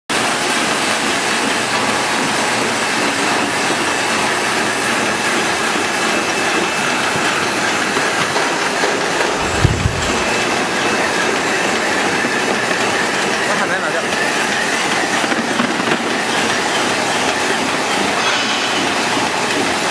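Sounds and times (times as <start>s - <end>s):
low thump: 9.4s - 10.6s.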